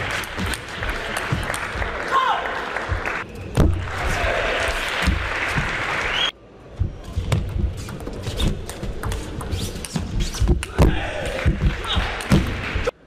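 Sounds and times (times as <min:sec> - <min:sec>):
crowd applause: 0:00.0 - 0:06.3.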